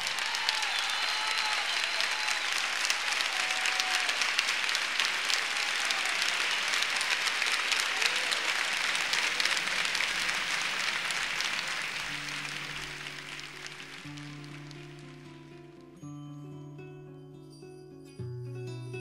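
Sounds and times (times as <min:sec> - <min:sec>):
audience applauding: 0:00.0 - 0:16.0
guitar music: 0:12.1 - 0:19.0.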